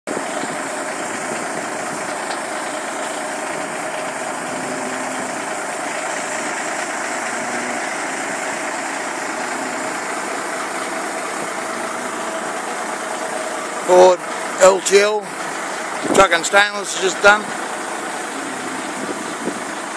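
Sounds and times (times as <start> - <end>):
diesel truck engine idling: 0.1 - 19.9.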